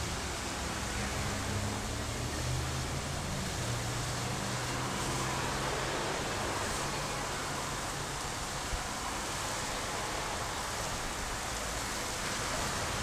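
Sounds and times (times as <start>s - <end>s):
water rushing from hydrant: 0.0s - 13.0s.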